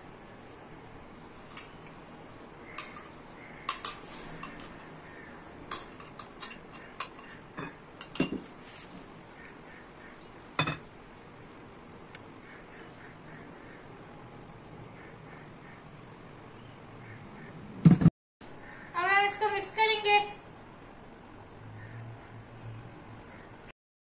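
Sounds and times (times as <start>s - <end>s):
metal spoon clinking on ceramic bowl: 2.8s - 3.1s, 3.7s - 4.9s, 5.7s - 8.4s, 10.6s - 10.8s.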